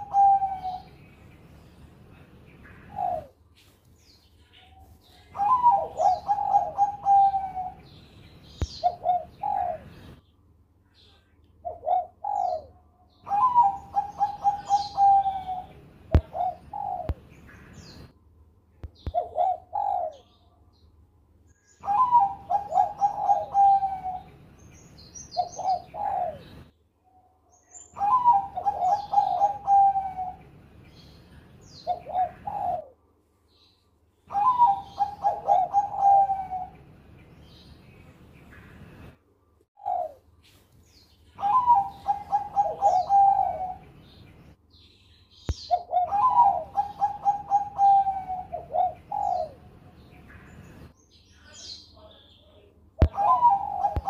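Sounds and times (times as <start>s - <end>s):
dove cooing: 0.0s - 1.0s, 2.6s - 3.4s, 4.6s - 10.2s, 11.6s - 18.0s, 19.0s - 20.4s, 21.8s - 24.4s, 25.3s - 26.7s, 27.9s - 30.5s, 31.7s - 33.0s, 34.3s - 36.8s, 39.8s - 40.3s, 41.4s - 44.2s, 45.6s - 50.1s, 53.0s - 54.0s.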